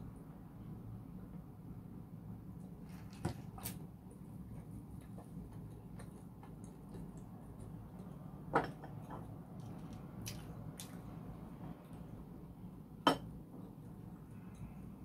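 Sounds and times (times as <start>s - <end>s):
low steady hum: 0.0s - 15.0s
soft eating clicks and taps: 4.5s - 12.1s, 13.2s - 14.9s.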